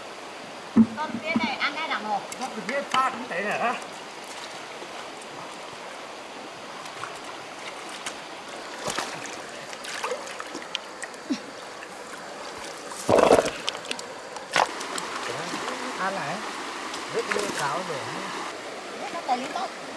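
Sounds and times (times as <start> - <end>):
running water: 0.0 - 19.9
small splashes and clicks: 6.8 - 11.2, 11.8 - 15.7.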